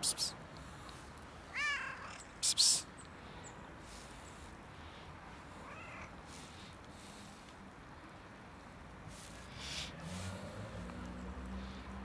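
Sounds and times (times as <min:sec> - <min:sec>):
cat meowing: 0:01.5 - 0:02.2, 0:05.6 - 0:06.1.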